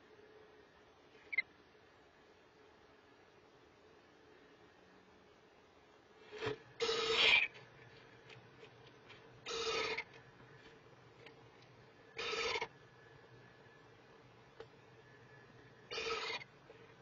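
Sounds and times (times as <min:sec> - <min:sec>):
owlets raspy hissing calls: 0:06.8 - 0:07.5, 0:09.5 - 0:10.1, 0:12.2 - 0:12.7, 0:15.9 - 0:16.5.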